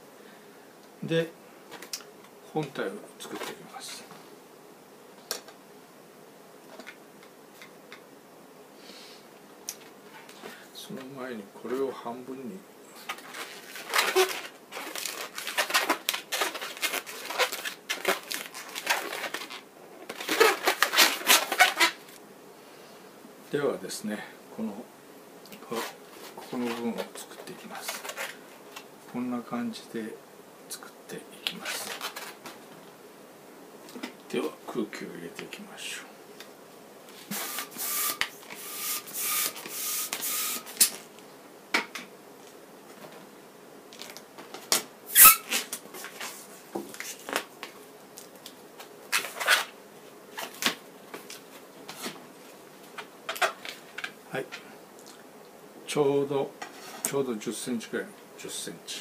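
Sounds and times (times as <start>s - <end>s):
balloon squeaking: 13.1s - 22.1s, 37.3s - 40.8s, 45.1s - 45.8s.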